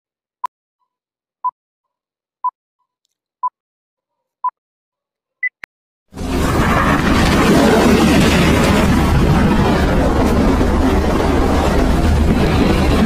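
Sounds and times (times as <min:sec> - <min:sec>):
loud rushing noise: 0:06.2 - 0:13.0.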